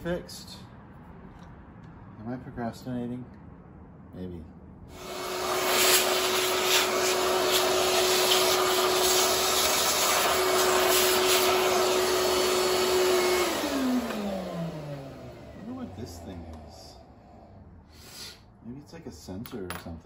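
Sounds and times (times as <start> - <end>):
vacuum cleaner running: 4.9 - 17.6.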